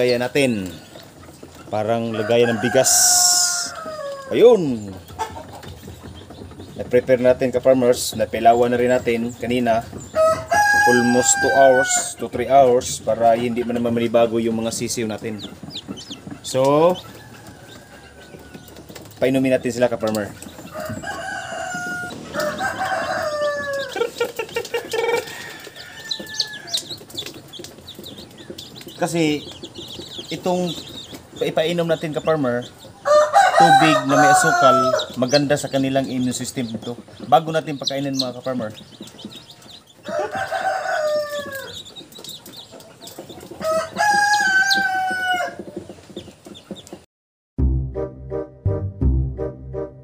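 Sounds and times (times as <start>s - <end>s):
chicks peeping: 0.0s - 47.0s
rooster clucking: 1.3s - 6.7s, 20.0s - 31.7s
rooster crowing: 2.1s - 4.5s, 10.2s - 12.1s, 20.7s - 24.1s, 25.0s - 27.0s, 33.0s - 35.4s, 40.0s - 41.9s, 43.6s - 45.6s
music with steady beat: 47.6s - 50.0s.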